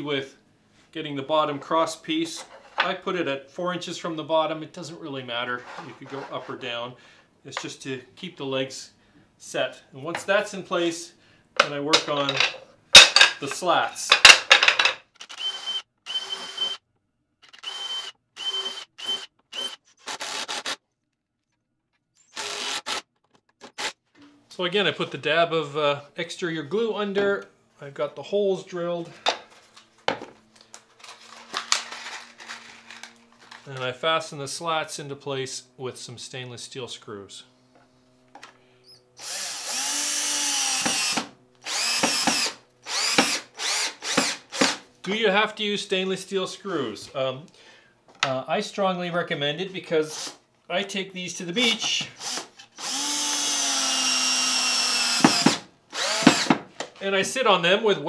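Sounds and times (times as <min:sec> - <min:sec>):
wooden pieces clattering: 0:11.9 - 0:13.5, 0:14.1 - 0:15.0
cordless drill whining: 0:15.2 - 0:16.8, 0:17.4 - 0:20.8, 0:22.2 - 0:23.0, 0:38.5 - 0:44.8, 0:50.1 - 0:50.4, 0:52.2 - 0:56.6.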